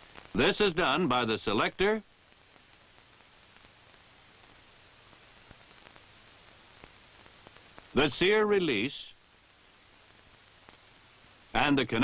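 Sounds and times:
soundtrack hiss: 0.0s - 12.0s
faint ticks: 2.2s - 7.9s, 9.2s - 11.2s.

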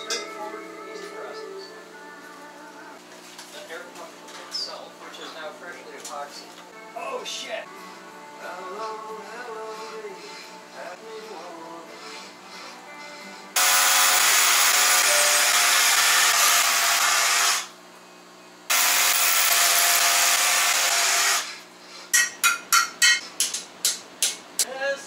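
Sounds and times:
cordless drill boring into wall: 13.6s - 17.7s, 18.7s - 21.6s.

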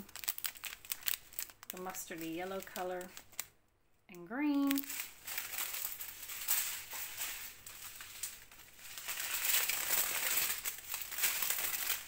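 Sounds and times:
plastic packets crinkling: 0.0s - 3.6s, 4.5s - 12.0s.

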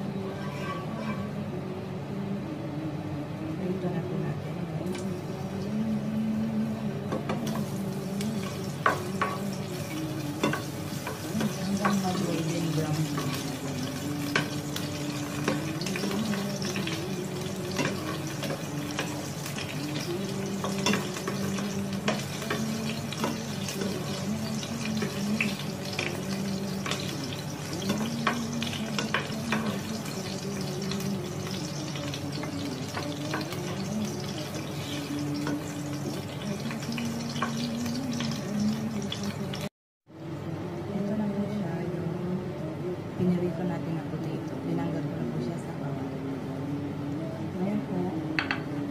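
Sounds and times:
potatoes sizzling in frying pan: 7.4s - 39.7s.

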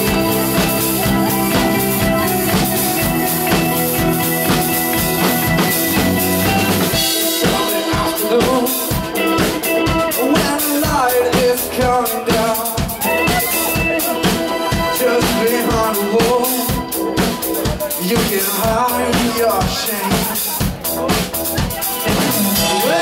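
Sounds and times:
bass guitar: 0.0s - 23.0s
drum kit: 0.0s - 23.0s
pitch-bending lead guitar line: 0.0s - 23.0s
rock band playing: 0.0s - 23.0s.

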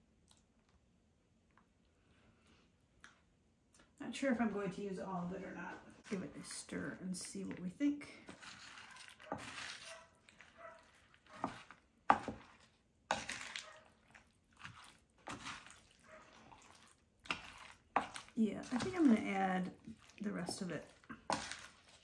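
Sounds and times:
wet squishing of stirred food: 3.0s - 22.0s.

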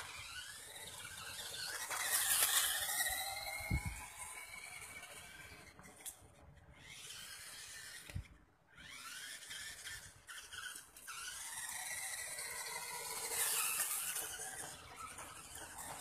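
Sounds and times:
toy electric motor whining: 0.0s - 16.0s.

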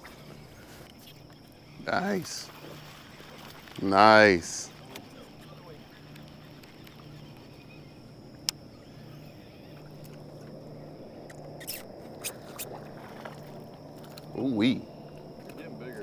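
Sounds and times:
faint low hum: 0.0s - 16.0s
reel clicks: 3.0s - 10.5s.

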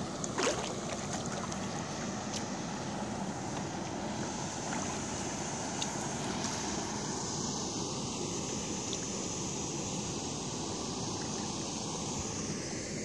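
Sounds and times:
water stirred by wading: 0.0s - 7.0s.

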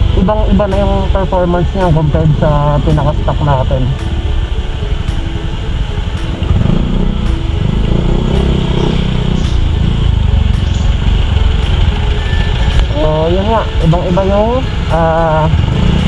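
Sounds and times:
road and wind noise: 0.0s - 16.0s
scooter engine running: 5.5s - 16.0s.

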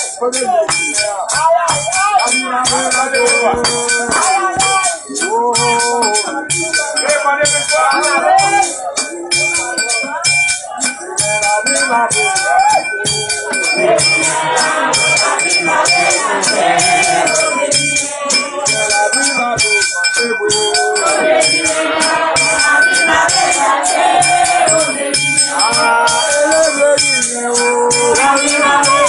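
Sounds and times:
group singing a chant: 0.0s - 29.0s
rattle and shaker beat: 0.0s - 29.0s
high ringing tones: 1.8s - 29.0s.

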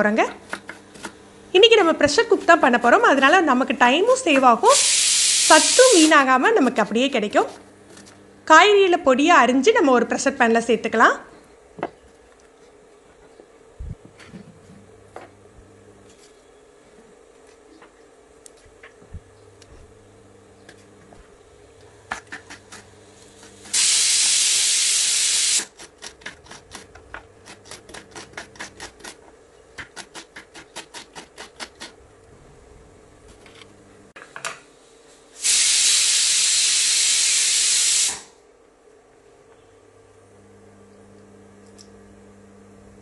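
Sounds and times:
pressure cooker steam hiss: 4.6s - 6.2s, 23.4s - 25.7s, 35.4s - 38.4s.

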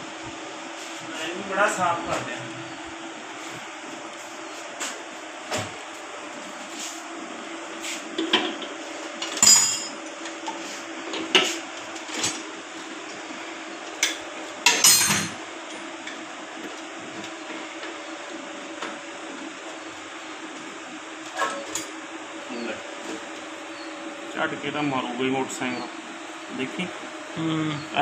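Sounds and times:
steady low hum: 12.6s - 28.0s.

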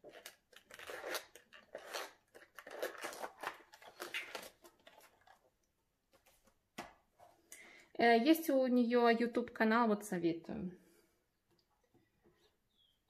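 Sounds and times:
paper pages being flipped: 0.0s - 5.5s.

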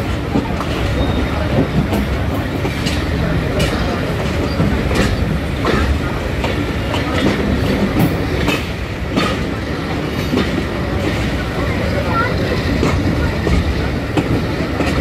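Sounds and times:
train rumble: 0.0s - 15.0s
wheels clacking over rail joints: 0.0s - 15.0s.

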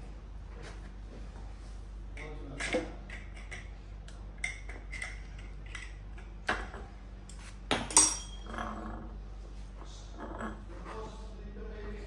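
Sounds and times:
metal clinks and knocks: 6.6s - 8.8s.

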